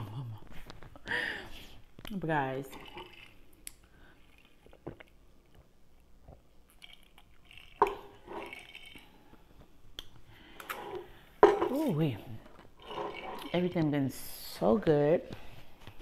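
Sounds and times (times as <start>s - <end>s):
person chewing food: 2.8s - 11.1s.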